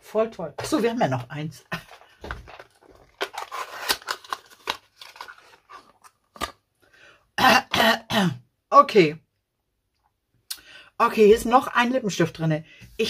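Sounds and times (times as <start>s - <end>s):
cardboard packaging crackling: 0.6s - 6.6s.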